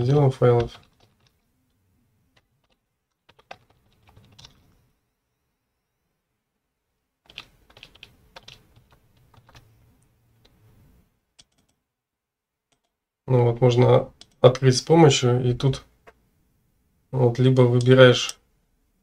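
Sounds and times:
keyboard keys clicking: 0:02.4 - 0:04.7, 0:07.3 - 0:09.7, 0:11.4 - 0:11.8.

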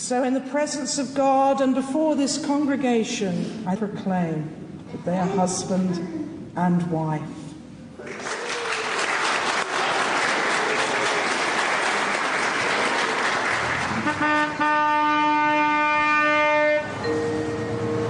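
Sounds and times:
crowd applauding: 0:08.0 - 0:14.6.

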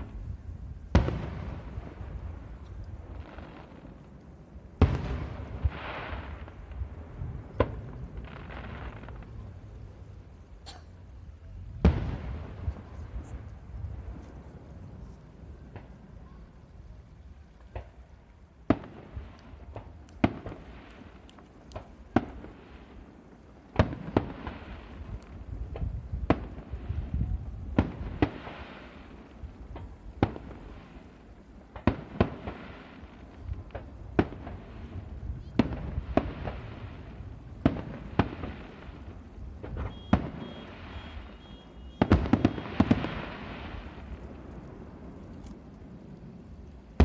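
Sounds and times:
firework shells bursting: 0:37.5 - 0:45.8.

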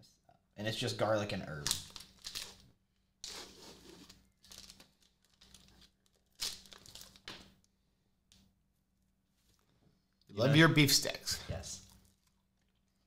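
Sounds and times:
plastic wrapper tearing and crinkling: 0:01.6 - 0:07.7.

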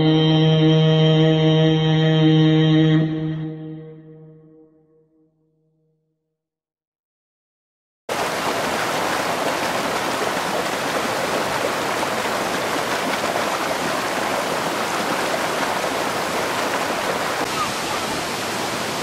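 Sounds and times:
stream rushing over rocks: 0:08.1 - 0:19.0.

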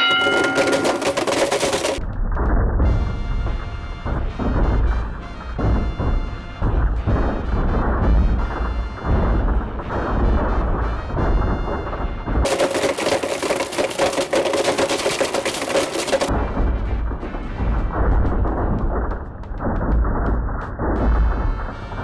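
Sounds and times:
blenders grinding phones: 0:00.0 - 0:02.0.

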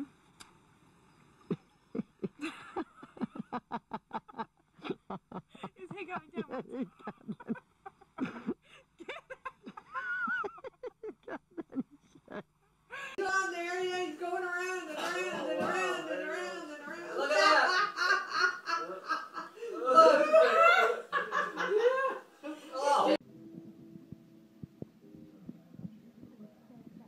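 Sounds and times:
woman laughing hard: 0:02.0 - 0:13.2
person speaking: 0:05.5 - 0:07.3.

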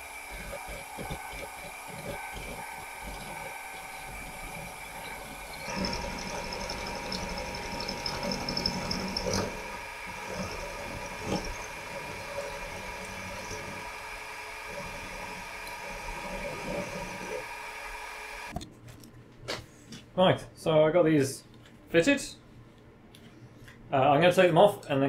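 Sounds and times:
end mill cutting metal: 0:00.0 - 0:18.5
milling machine motor whine: 0:00.0 - 0:18.5.

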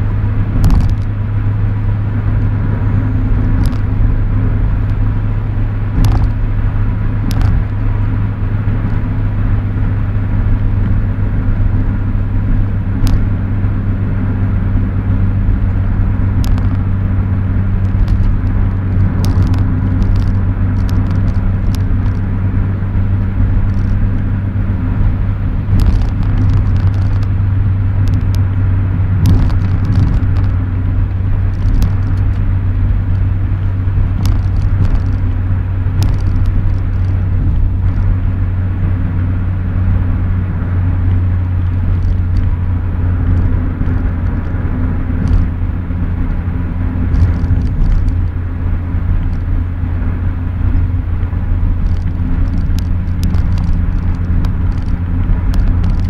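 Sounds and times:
car engine droning: 0:00.0 - 0:56.0
tyre and road noise: 0:00.0 - 0:56.0
light clicks and rattles: 0:06.0 - 0:06.4, 0:07.2 - 0:07.8, 0:16.3 - 0:16.9, 0:17.8 - 0:22.4, 0:23.2 - 0:24.3, 0:25.7 - 0:27.4, 0:28.0 - 0:28.6, 0:29.2 - 0:32.5, 0:34.1 - 0:35.4, 0:36.0 - 0:38.2, 0:41.1 - 0:45.6, 0:47.1 - 0:48.4, 0:50.7 - 0:56.0.

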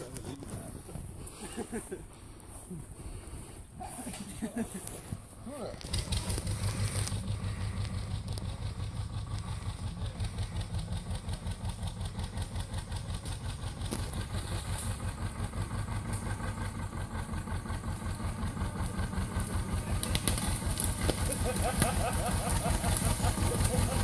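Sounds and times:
tractor engine idling: 0:00.0 - 0:24.0.

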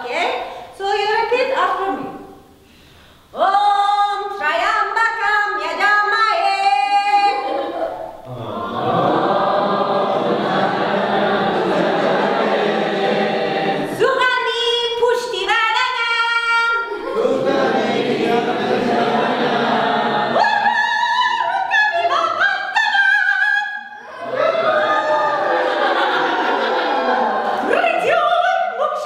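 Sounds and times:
group of voices singing: 0:07.3 - 0:14.2, 0:16.8 - 0:22.8.

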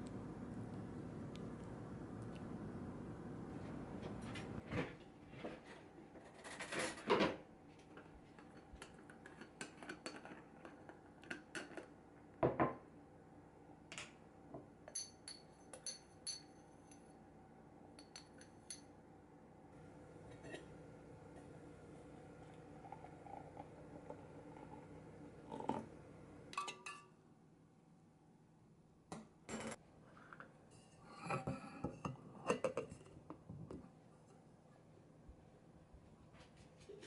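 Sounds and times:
spoon clinking against glass: 0:14.9 - 0:17.1, 0:18.0 - 0:18.9.

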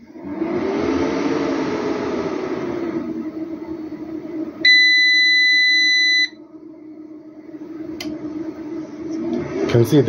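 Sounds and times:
steady low hum: 0:00.0 - 0:10.0
high-pitched buzzer beep: 0:04.7 - 0:06.4.

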